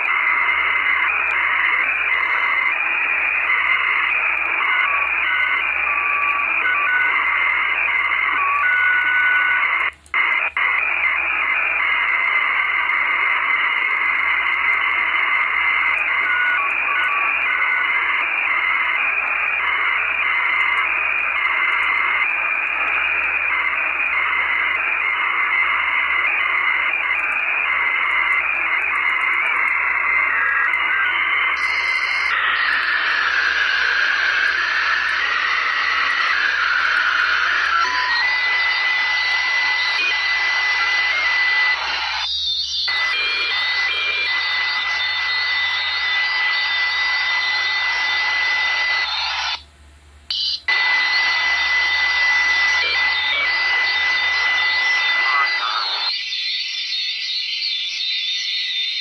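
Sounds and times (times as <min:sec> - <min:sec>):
radio static hiss: 0:00.0 - 0:59.0.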